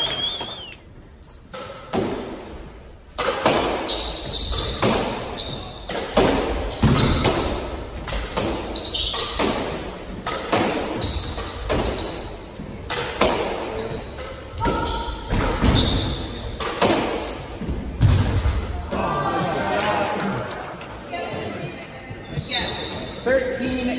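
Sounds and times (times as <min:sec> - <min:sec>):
squash ball struck by racquets: 0:01.5 - 0:02.5, 0:03.1 - 0:18.7
sneakers squeaking on hardwood: 0:03.5 - 0:18.6, 0:22.2 - 0:23.3.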